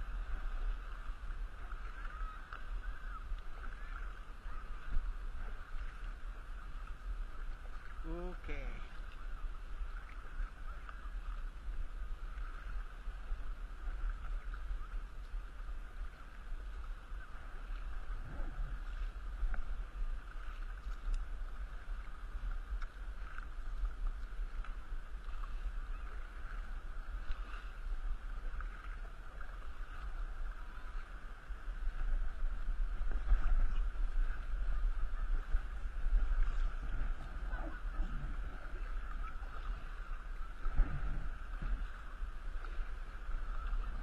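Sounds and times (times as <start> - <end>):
paddle strokes splashing water: 0.0 - 44.0
wind rumble on microphone: 0.0 - 44.0.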